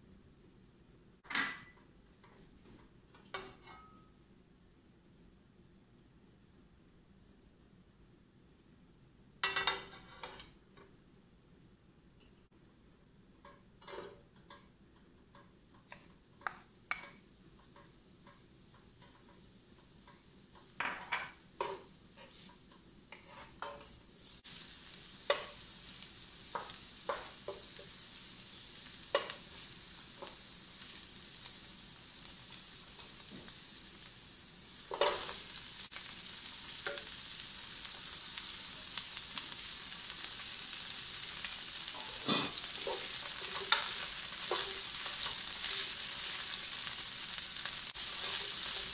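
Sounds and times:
spatula scraping a pan: 0:09.7 - 0:10.6, 0:13.4 - 0:14.6, 0:21.0 - 0:31.2, 0:34.8 - 0:37.1, 0:40.7 - 0:48.9
vegetables sizzling in oil: 0:12.7 - 0:48.9.

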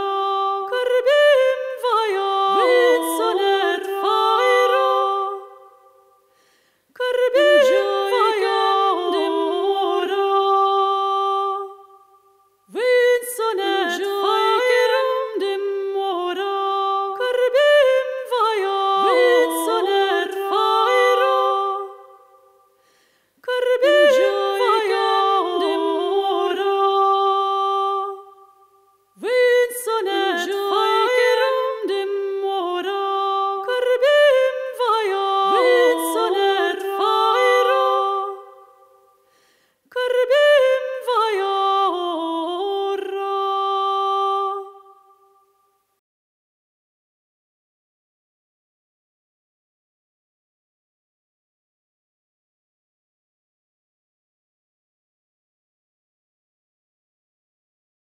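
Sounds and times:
person singing unaccompanied: 0:00.0 - 0:05.7, 0:07.0 - 0:11.8, 0:12.7 - 0:22.1, 0:23.4 - 0:28.4, 0:29.2 - 0:38.6.

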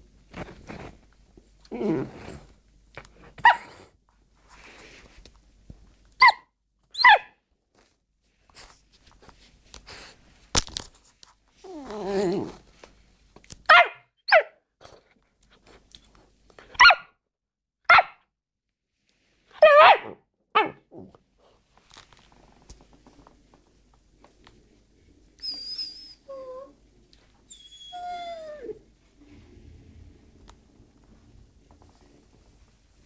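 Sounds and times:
puppy growling: 0:01.6 - 0:02.6, 0:11.6 - 0:12.6
puppy yapping barks: 0:03.4 - 0:03.7, 0:06.2 - 0:07.4, 0:13.7 - 0:14.6, 0:16.7 - 0:17.1, 0:17.8 - 0:18.2, 0:19.6 - 0:20.9.

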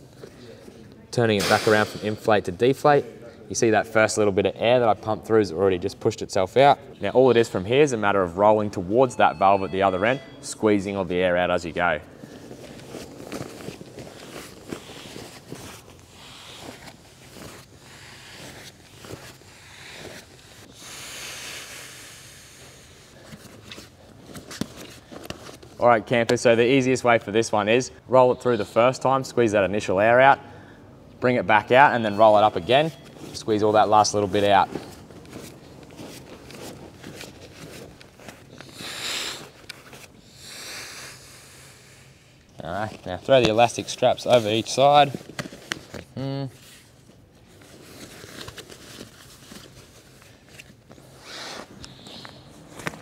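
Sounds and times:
air hissing out of valve: 0:01.4 - 0:02.2, 0:19.6 - 0:23.0, 0:38.7 - 0:39.6, 0:40.3 - 0:42.3
fabric rustling: 0:12.2 - 0:20.7, 0:32.4 - 0:38.7, 0:46.7 - 0:53.0.

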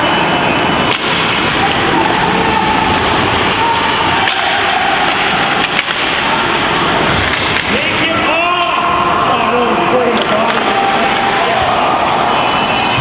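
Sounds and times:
hockey sticks and puck clacking: 0:00.0 - 0:13.0
spectators chattering and calling: 0:00.0 - 0:13.0.

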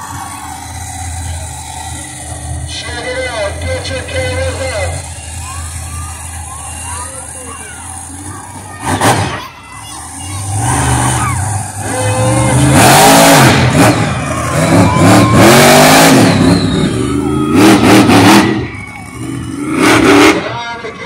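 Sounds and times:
monster truck engine revving: 0:00.0 - 0:21.0.

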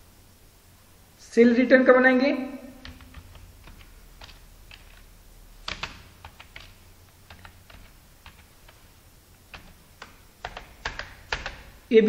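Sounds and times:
computer keyboard typing: 0:02.7 - 0:12.0.

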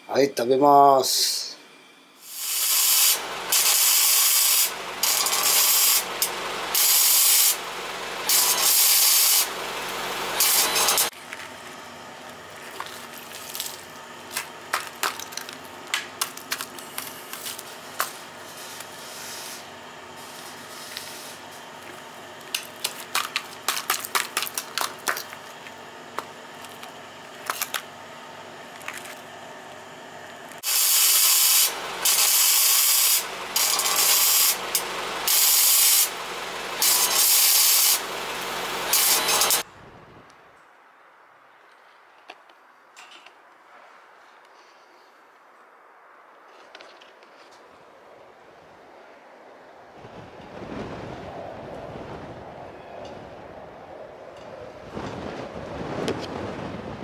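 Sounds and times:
welding arc crackling and hissing: 0:02.2 - 0:27.8, 0:30.5 - 0:39.7.

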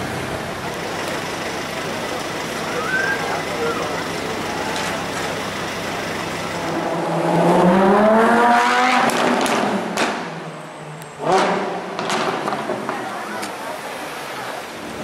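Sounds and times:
car engine accelerating: 0:00.0 - 0:10.3.

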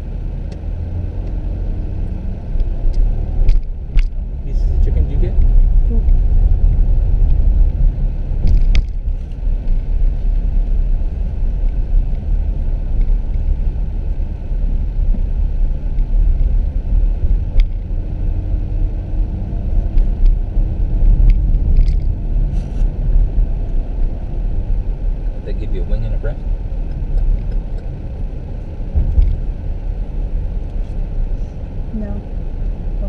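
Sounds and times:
car road and engine noise: 0:00.0 - 0:33.0.

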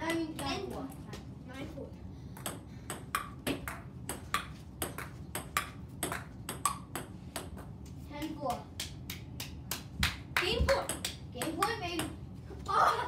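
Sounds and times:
ball bouncing on table: 0:02.4 - 0:07.8, 0:08.8 - 0:12.2
ping pong ball clicking off paddles: 0:02.4 - 0:07.8, 0:08.5 - 0:12.2.

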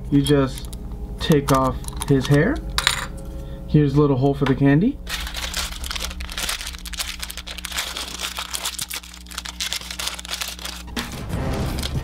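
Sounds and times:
plastic bag crinkling: 0:05.0 - 0:12.0.

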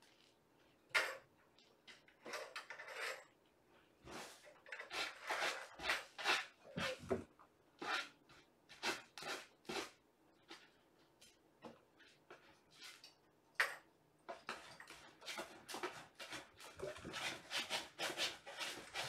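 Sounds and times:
kittens scratching and rustling: 0:14.5 - 0:19.0.

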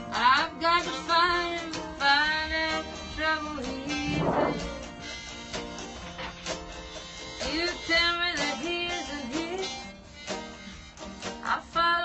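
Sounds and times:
tenor guitar strummed: 0:00.0 - 0:11.7
sliding melody line: 0:03.9 - 0:05.0.

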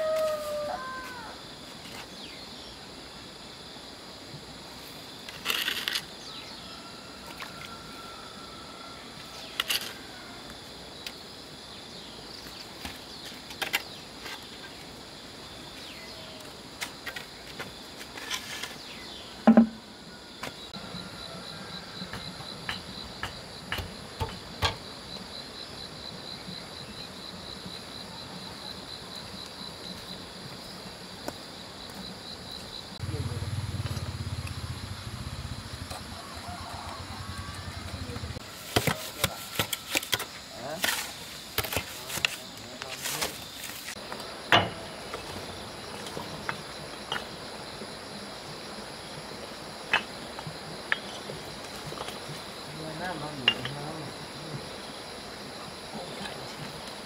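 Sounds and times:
cricket chirping: 0:00.0 - 0:57.0
sharp knocks: 0:19.5 - 0:19.8.

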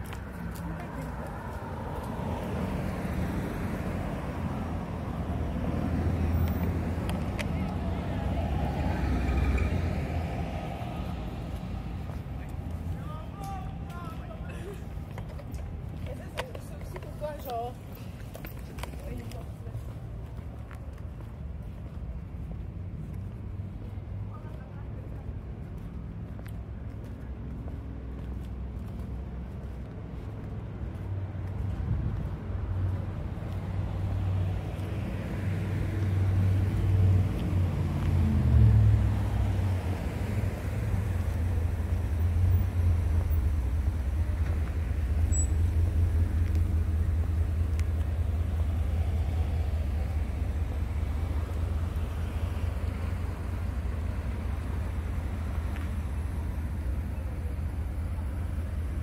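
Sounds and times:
car driving past: 0:00.0 - 0:12.9, 0:32.6 - 0:59.0
low traffic rumble: 0:00.0 - 0:59.0.

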